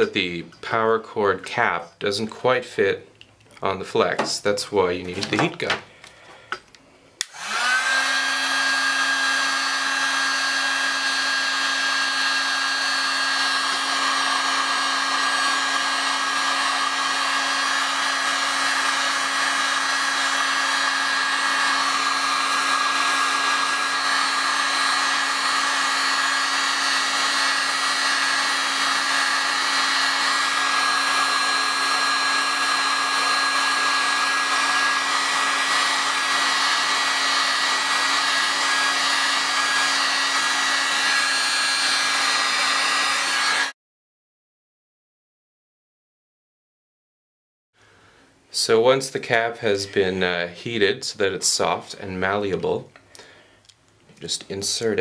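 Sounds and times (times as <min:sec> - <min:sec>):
heat gun fan humming and whining: 0:07.2 - 0:43.7.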